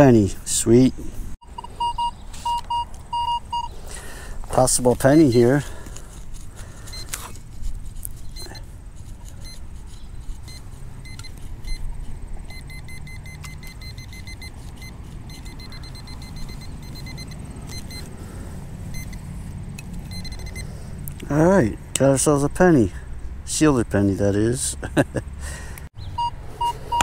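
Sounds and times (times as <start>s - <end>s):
metal detector beeps: 1.4s - 3.9s, 4.5s - 5.9s, 6.8s - 7.4s, 8.2s - 19.3s, 20.0s - 20.9s, 26.2s - 27.0s
digging clicks and scrapes: 4.4s - 18.2s, 18.9s - 21.3s.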